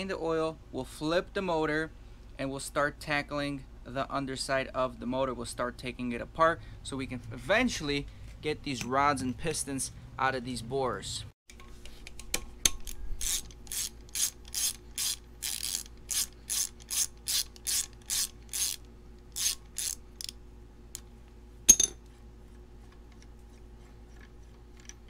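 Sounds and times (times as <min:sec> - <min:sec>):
socket ratchet clicking: 0:12.6 - 0:18.8, 0:19.4 - 0:20.4
sharp metal clank: 0:21.7 - 0:22.0.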